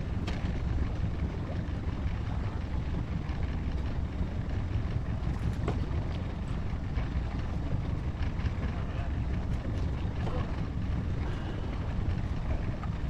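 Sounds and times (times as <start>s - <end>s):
boat moving through water: 0.0s - 13.0s.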